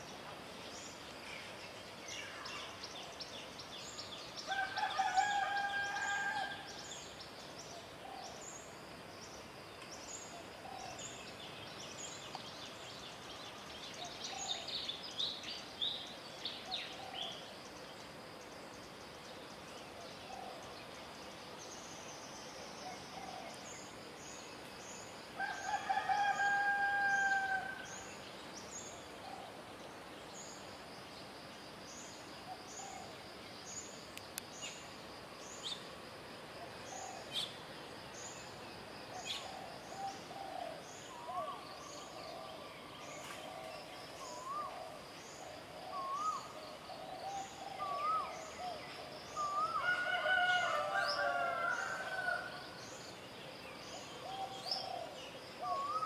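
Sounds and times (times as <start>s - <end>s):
rooster crowing: 4.5s - 6.6s, 25.4s - 27.8s, 49.8s - 52.6s.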